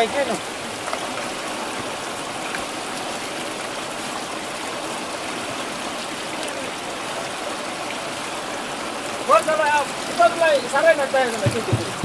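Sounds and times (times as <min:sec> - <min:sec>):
river water rushing: 0:00.0 - 0:12.0.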